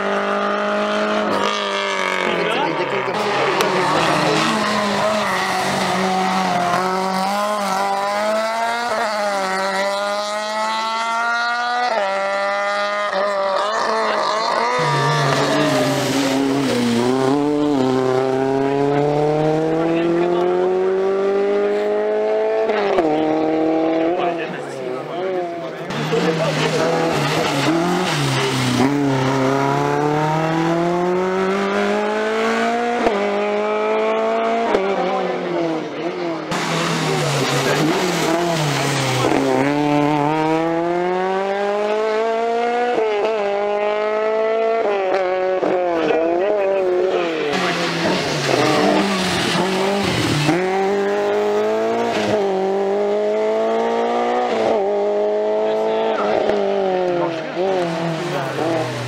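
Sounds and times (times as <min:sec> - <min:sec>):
rally car engine accelerating: 0:00.0 - 0:59.0.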